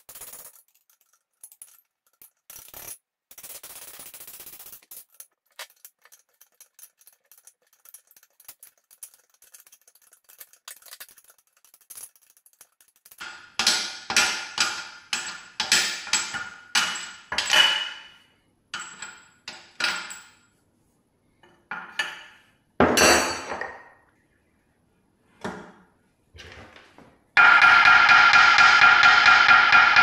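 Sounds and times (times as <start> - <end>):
hammer striking metal: 13.2 - 18.1, 27.4 - 30.0.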